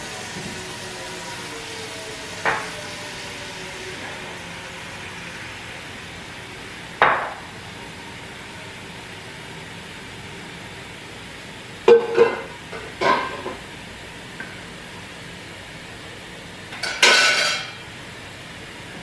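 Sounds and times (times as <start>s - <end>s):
dishes clattering in sink: 11.9s - 13.6s, 16.8s - 17.8s.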